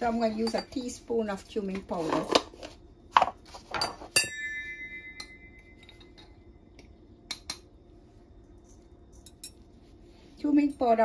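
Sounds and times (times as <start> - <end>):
spoon clinking on metal bowl: 0.3 - 0.8, 3.8 - 6.3.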